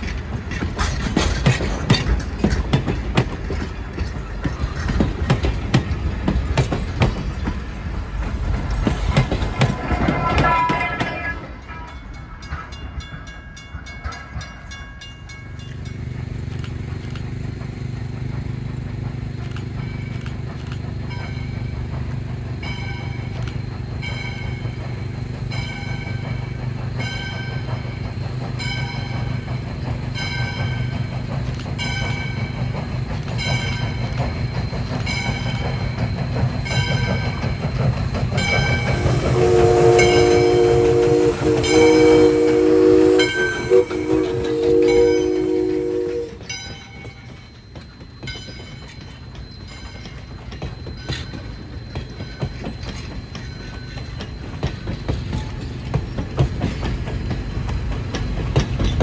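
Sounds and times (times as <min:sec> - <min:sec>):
wheels clicking over rail joints: 0:00.0 - 0:59.0
locomotive bell ringing: 0:09.4 - 0:16.6, 0:19.7 - 0:59.0
steam whistle: 0:39.0 - 0:46.5.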